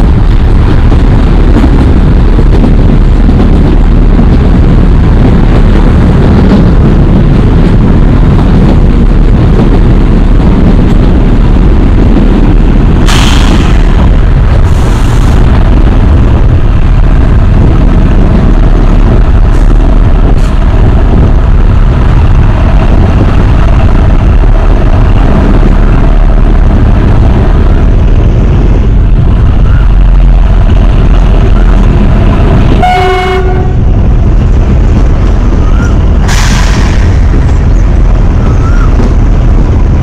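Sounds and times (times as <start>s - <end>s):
train low rumble: 0.0s - 40.0s
train horn blast: 32.7s - 34.0s.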